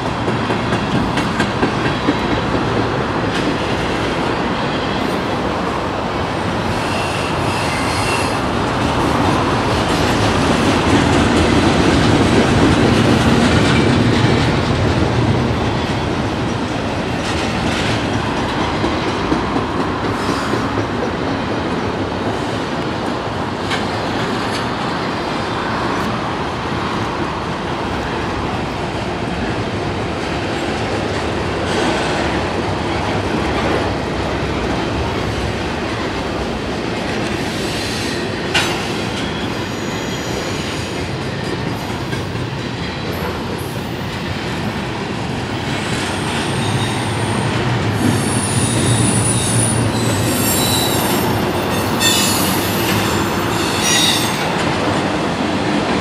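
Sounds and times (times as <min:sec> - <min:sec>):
rail clicks: 0:00.0 - 0:56.0
train wheels on rail: 0:00.0 - 0:56.0
high-pitched wheel squeals: 0:48.2 - 0:54.4.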